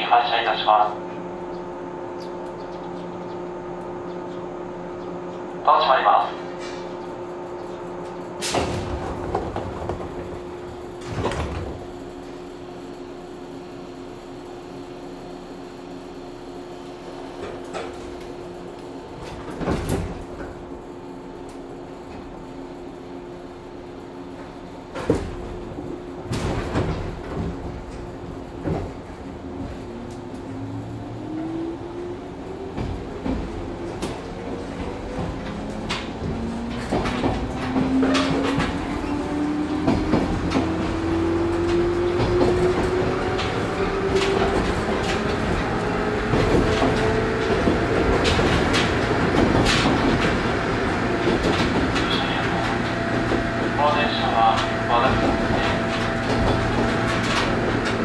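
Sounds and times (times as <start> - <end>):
train clanks and knocks: 0.0 - 58.0
train running rumble: 0.0 - 58.0
clacks over rail joints: 6.2 - 12.5, 17.3 - 20.7, 24.3 - 31.0, 32.5 - 58.0.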